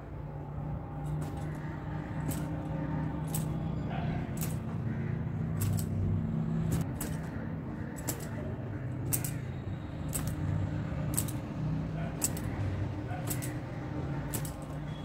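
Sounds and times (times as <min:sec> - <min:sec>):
metal bangles clinking: 0:02.2 - 0:03.7, 0:05.6 - 0:06.0, 0:08.0 - 0:08.3, 0:09.0 - 0:09.4, 0:13.2 - 0:13.7, 0:14.3 - 0:15.0.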